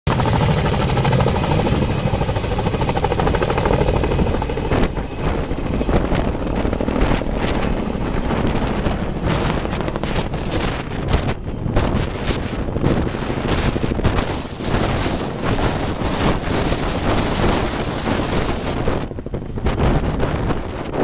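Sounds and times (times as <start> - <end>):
helicopter rotors beating: 0.1 - 20.4
wind buffeting microphone: 0.1 - 21.0.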